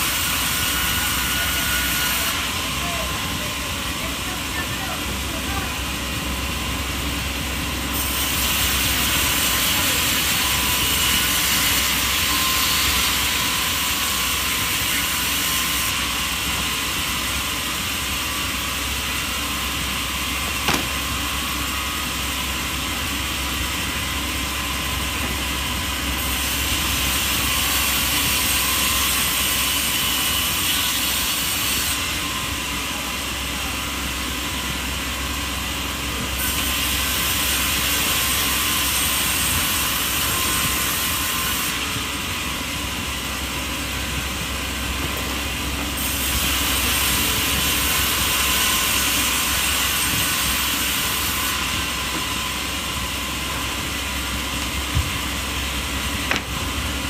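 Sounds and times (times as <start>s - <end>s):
woodworking machinery running: 0.0s - 57.0s.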